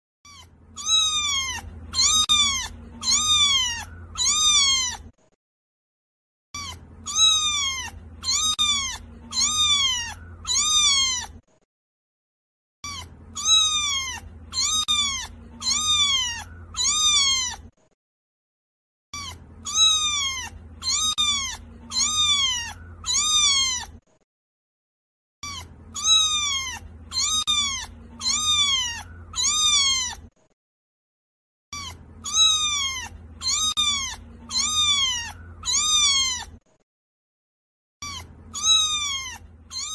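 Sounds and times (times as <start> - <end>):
kitten meowing: 0.3 - 5.2, 6.6 - 11.5, 12.8 - 17.8, 19.1 - 24.0, 25.4 - 30.4, 31.7 - 36.6, 38.0 - 39.9.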